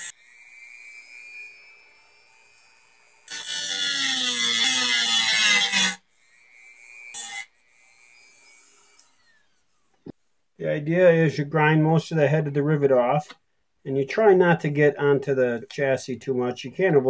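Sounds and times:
cutoff wheel grinding metal: 0.0s - 10.1s
rotary tool motor whining: 0.0s - 10.2s.

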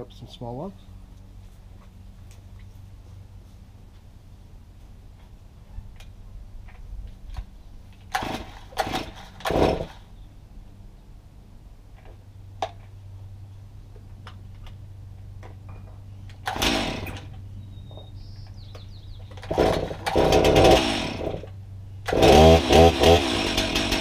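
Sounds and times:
chainsaw cutting log: 8.1s - 10.0s, 16.4s - 17.3s, 19.4s - 21.5s, 22.1s - 24.0s
chainsaw idling and revving: 8.1s - 10.0s, 16.4s - 17.3s, 19.4s - 24.0s.

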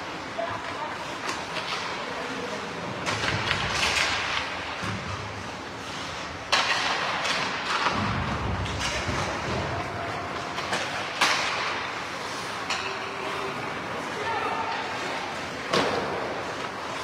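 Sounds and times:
skate blades scraping ice: 0.0s - 17.0s.

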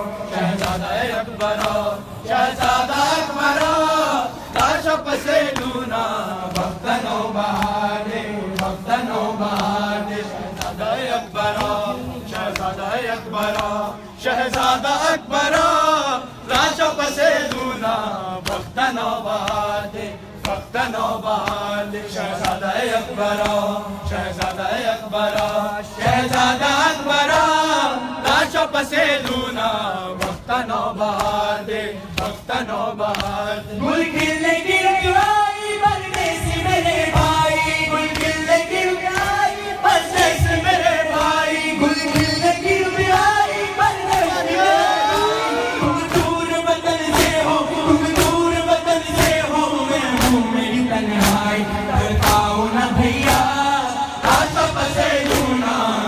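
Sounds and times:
men chanting a lament: 0.0s - 56.0s
hands slapping chests: 0.5s - 1.9s, 2.5s - 7.9s, 8.5s - 9.9s, 10.5s - 15.8s, 17.4s - 21.8s, 22.4s - 27.6s, 28.2s - 34.5s, 36.1s - 41.5s, 42.1s - 45.4s, 46.0s - 46.4s, 47.0s - 50.4s, 51.1s - 51.5s, 52.1s - 52.6s, 53.2s - 53.6s, 54.2s - 55.7s.

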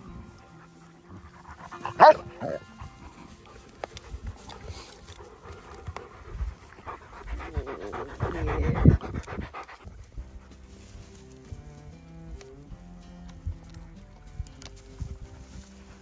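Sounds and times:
background music: 0.0s - 16.0s
dog panting: 0.6s - 10.7s.

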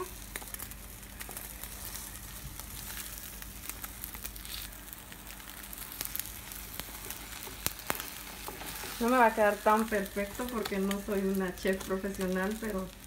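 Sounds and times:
omelette sizzling in a pan: 0.0s - 13.0s.

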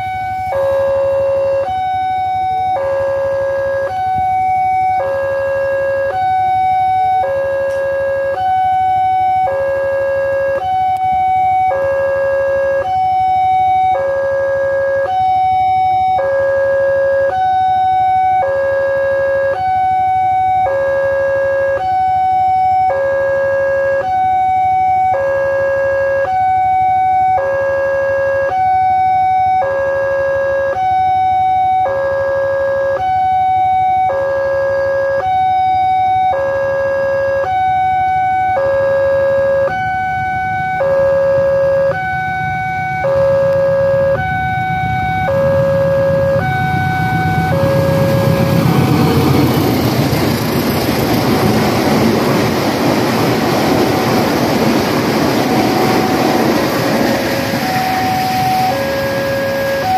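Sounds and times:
two-tone level crossing alarm: 0.0s - 59.9s.

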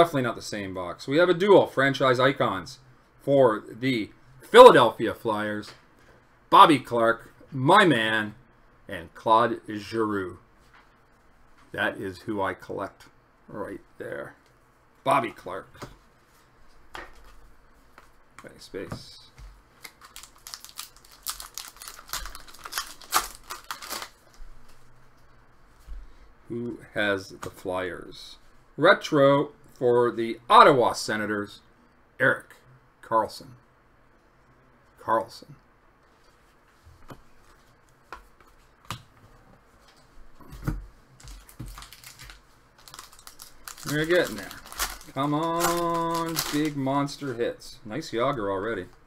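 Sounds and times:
card packs rustling: 19.8s - 24.4s, 41.2s - 47.2s
wrapper crinkling and tearing: 19.8s - 24.4s, 41.2s - 46.9s.

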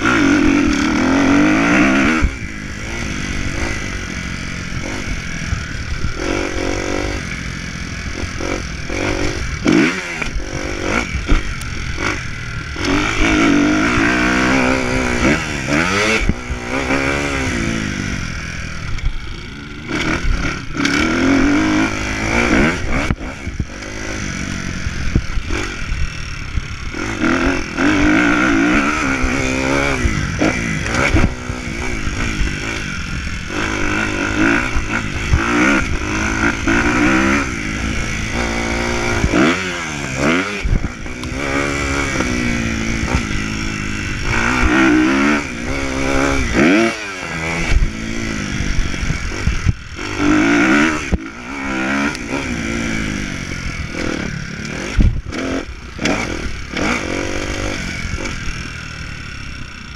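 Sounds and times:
motocross bike engine revving: 0.0s - 59.9s
wind rush on microphone: 53.0s - 55.4s.

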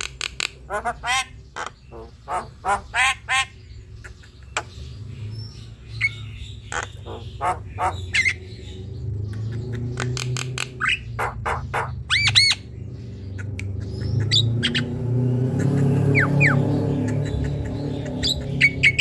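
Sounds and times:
bird clicks and squawks: 0.0s - 2.9s, 9.3s - 12.3s.

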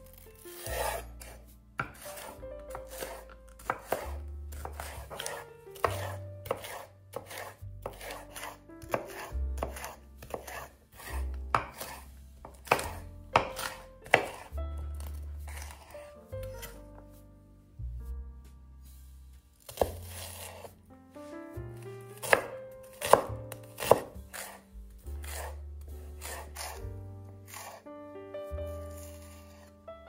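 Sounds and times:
knife chopping on wooden board: 0.1s - 16.8s, 19.6s - 20.7s, 22.1s - 24.6s, 25.2s - 25.6s, 26.2s - 26.8s.

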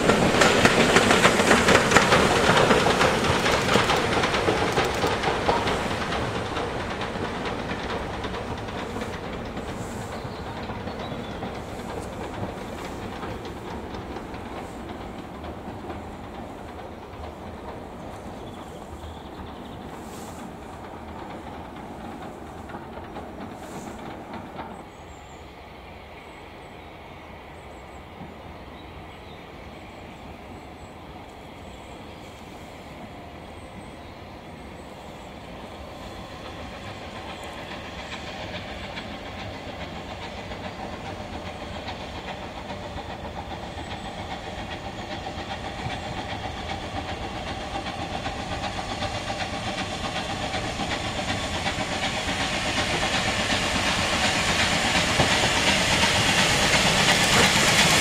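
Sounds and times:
steam train running: 0.0s - 58.0s.

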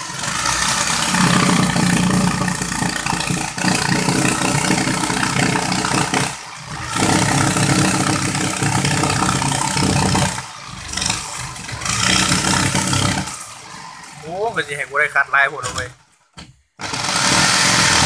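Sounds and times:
electric jigsaw cutting board: 0.0s - 14.6s, 16.8s - 18.0s.

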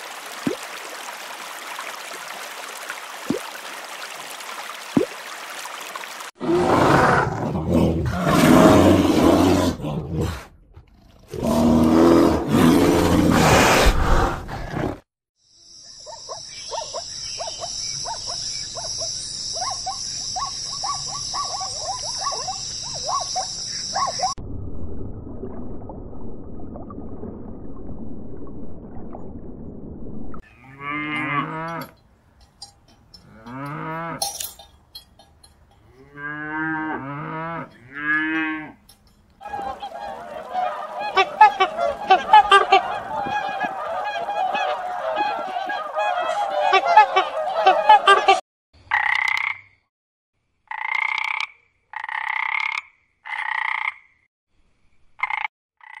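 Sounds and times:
cattle mooing: 30.4s - 31.9s
chorus of overlapping animal calls: 39.4s - 48.4s
frog croaking: 48.9s - 49.8s, 50.7s - 54.2s, 55.2s - 56.0s.

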